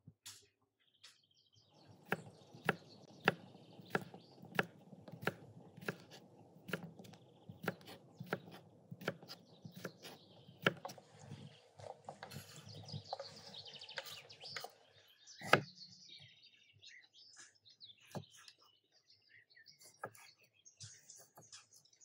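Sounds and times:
knife chopping on wooden board: 1.8s - 11.2s, 15.4s - 15.7s.

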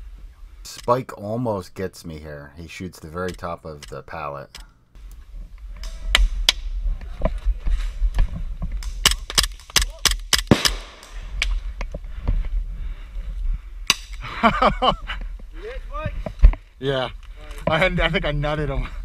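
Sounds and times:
airsoft pistol shots: 9.0s - 11.2s
gas pistol firing close by: 9.0s - 11.2s.

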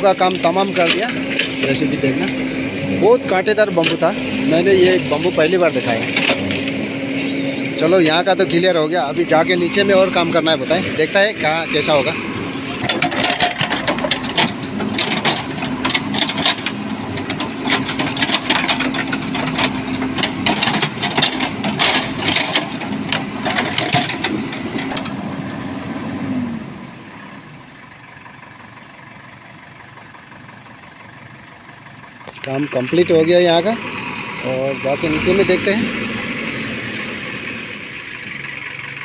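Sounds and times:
diesel engine running: 0.0s - 39.0s
rattling and knocking: 0.1s - 6.8s, 9.3s - 25.2s.

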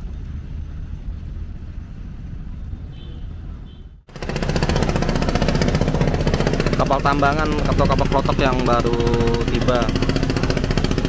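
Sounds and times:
boat engine running: 4.1s - 11.0s.

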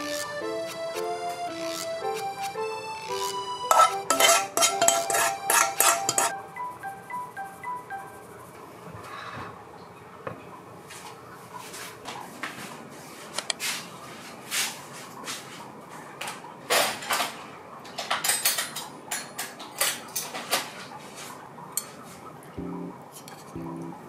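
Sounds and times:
plate and cutlery clinking on table: 3.7s - 6.3s.

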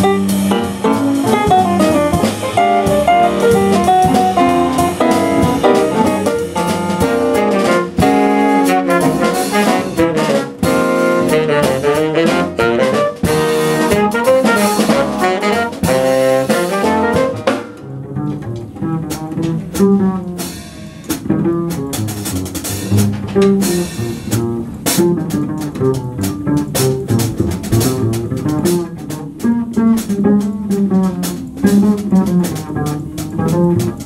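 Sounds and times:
tenor saxophone: 0.0s - 17.6s
trumpet: 0.0s - 17.8s
double bass: 0.0s - 34.0s
drum kit with cymbal strikes: 0.0s - 34.0s
piano: 0.0s - 34.0s.

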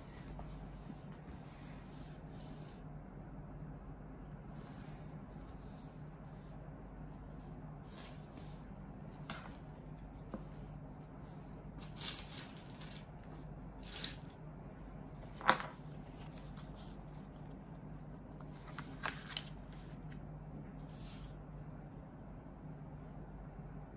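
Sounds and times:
faint low hum: 0.0s - 23.9s
plastic and cards rustling: 11.7s - 14.3s, 15.2s - 20.2s.

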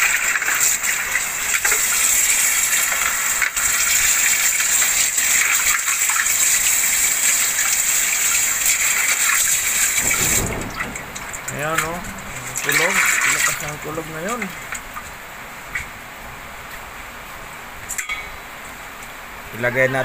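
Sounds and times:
tap water splashing into metal sink: 1.5s - 15.1s.

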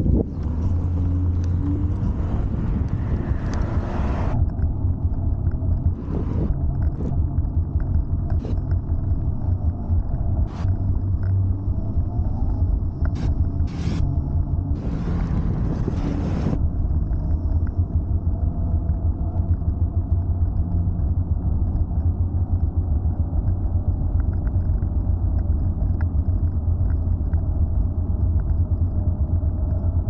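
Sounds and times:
scooter tyre noise: 0.0s - 4.7s, 5.8s - 7.5s, 10.1s - 16.9s
wind rumble on microphone: 0.0s - 30.0s.

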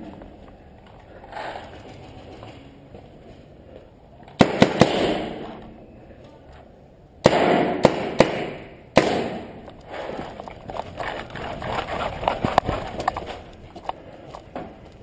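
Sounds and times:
gear ticking and rustling: 9.8s - 15.0s
running footsteps on dirt: 9.8s - 15.0s.

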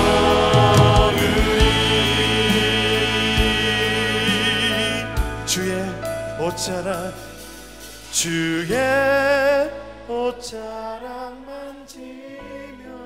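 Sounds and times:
electric bass low notes: 0.0s - 7.4s.

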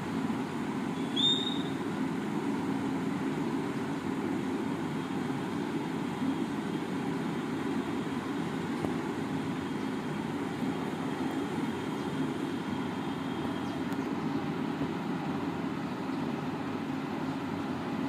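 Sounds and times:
short high chirp: 1.0s - 1.8s.

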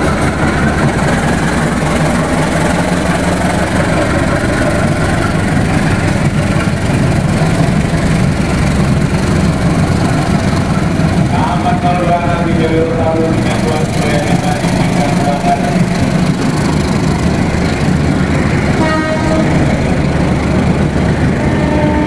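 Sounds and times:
locomotive engine droning: 0.0s - 22.0s.

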